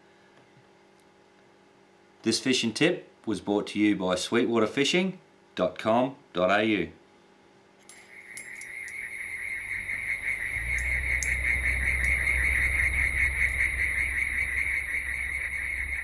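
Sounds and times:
insects chirring with pulsing trill: 7.9 - 16.0
low drone: 7.9 - 16.0.

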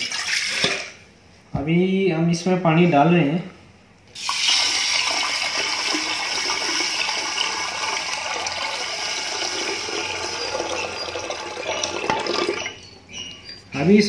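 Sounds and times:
water pouring into glass jar: 4.2 - 12.8.

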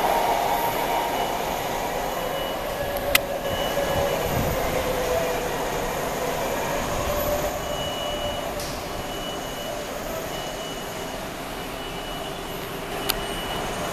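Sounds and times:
train rumble: 0.0 - 13.9
high electronic beep: 7.5 - 13.9.

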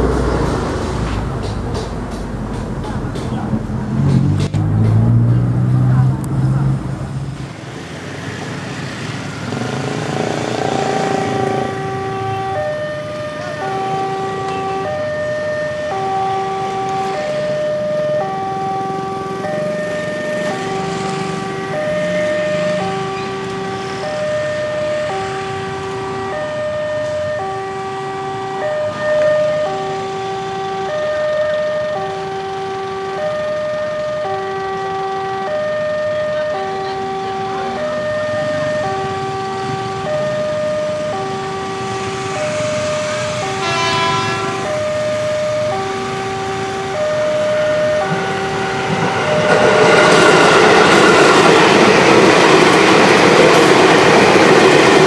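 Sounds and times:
motorcycle and car traffic: 0.0 - 55.0
railroad crossing warning alarm: 7.5 - 55.0.

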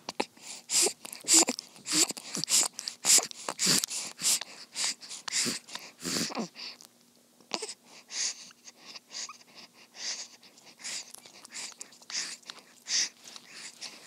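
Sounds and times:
baby grunting: 0.1 - 3.9, 5.3 - 6.6
baby sucking on a pacifier: 0.1 - 6.9, 10.0 - 14.0.

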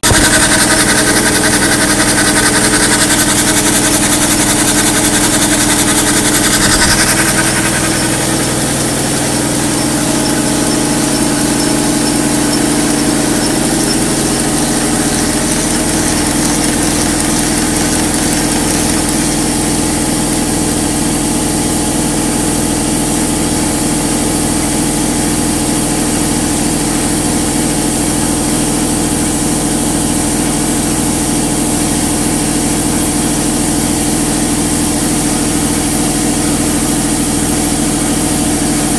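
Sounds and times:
air compressors running: 0.0 - 20.7
model steam engine running: 0.0 - 38.9.

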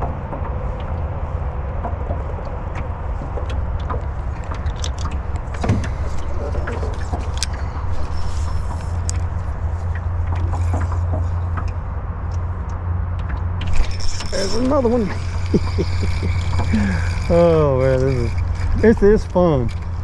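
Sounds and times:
fishing reel clicks and rattles: 3.8 - 11.7, 13.6 - 20.0.

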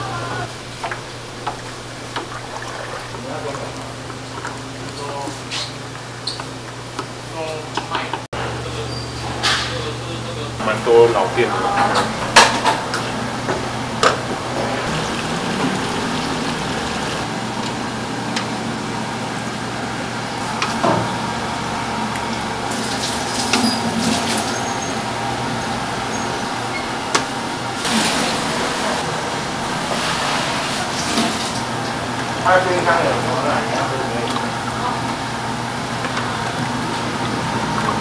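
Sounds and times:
machinery humming: 8.4 - 38.0.

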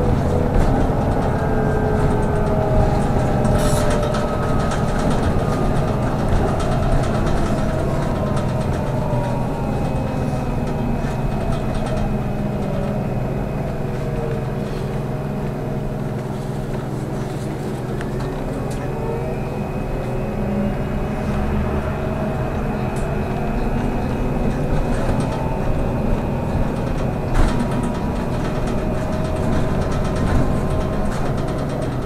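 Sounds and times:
low hum and road rumble: 0.0 - 32.0.

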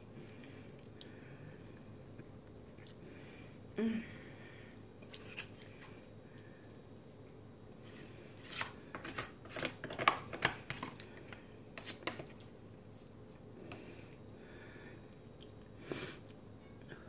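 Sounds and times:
fork scraping foil tray: 7.8 - 10.9.

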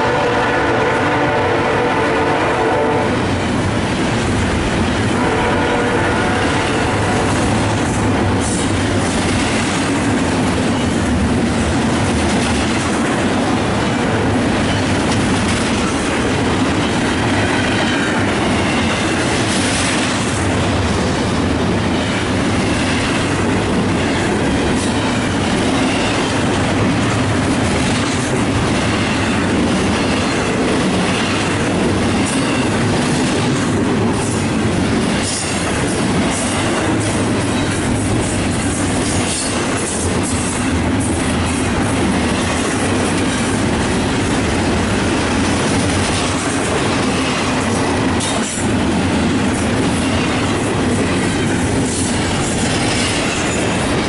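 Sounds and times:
train wheels rumbling over rails: 0.0 - 54.0.

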